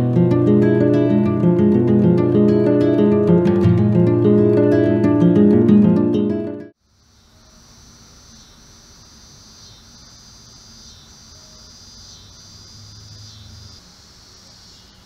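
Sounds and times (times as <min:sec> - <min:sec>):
insect chorus trilling: 0:06.8 - 0:15.0.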